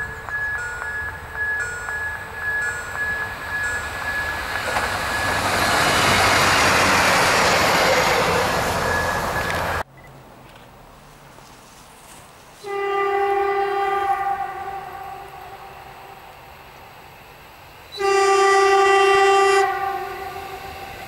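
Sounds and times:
diesel railcar passing: 0.0s - 21.0s
railcar horn blast: 12.6s - 16.3s, 17.9s - 21.0s.

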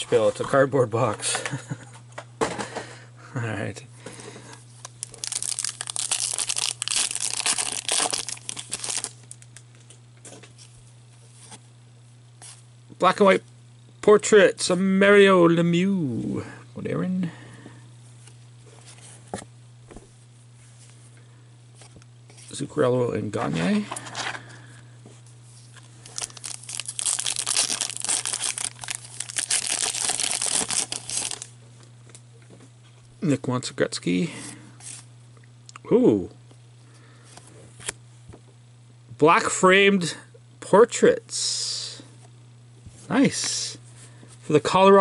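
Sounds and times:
wrapper crinkling and tearing: 4.8s - 9.6s, 25.7s - 31.5s.

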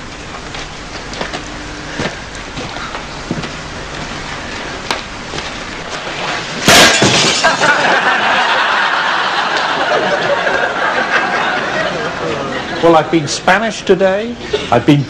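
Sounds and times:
dense steady noise: 0.0s - 15.0s
loud crash of smashing: 6.6s - 8.2s.

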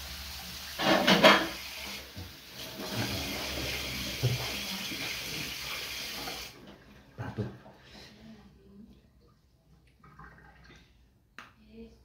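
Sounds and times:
running water: 0.0s - 7.7s.

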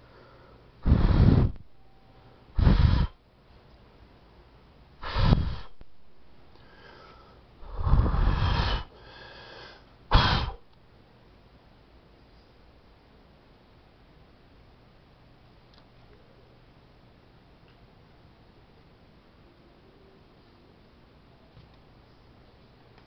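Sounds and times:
person blowing breathy bursts: 0.8s - 1.6s, 2.6s - 3.2s, 5.0s - 5.8s, 6.6s - 10.6s.

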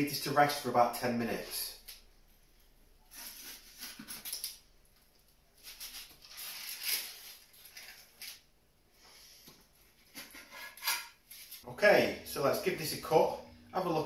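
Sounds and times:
foil crinkling: 3.1s - 8.5s.

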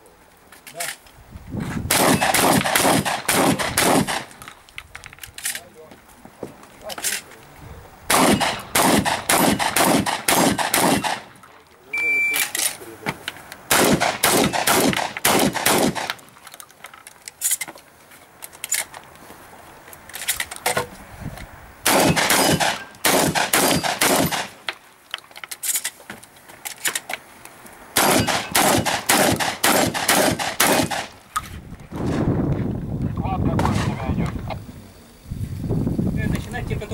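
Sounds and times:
shotgun shots: 1.9s - 4.4s, 8.1s - 11.4s, 13.7s - 16.2s, 21.8s - 24.6s, 28.0s - 31.2s, 33.6s - 34.2s.

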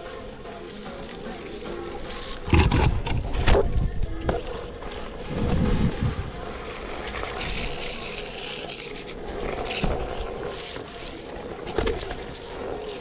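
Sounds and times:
wind buffeting microphone: 2.5s - 6.9s.

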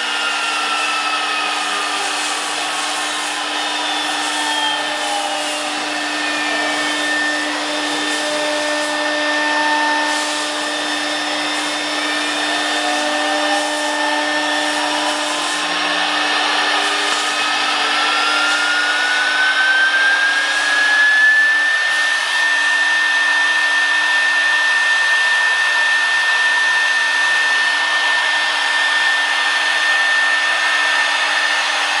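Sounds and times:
wood cutting hiss: 0.0s - 23.0s
router spindle high whine: 0.0s - 32.0s.

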